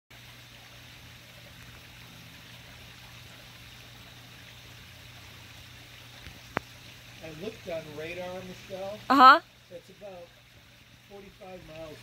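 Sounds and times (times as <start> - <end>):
even hiss: 6.3 - 10.4.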